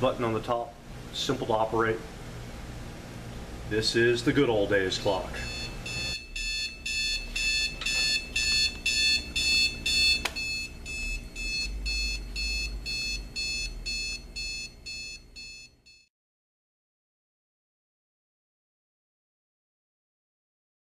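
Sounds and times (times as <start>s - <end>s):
alarm clock beeping: 5.4s - 16.1s.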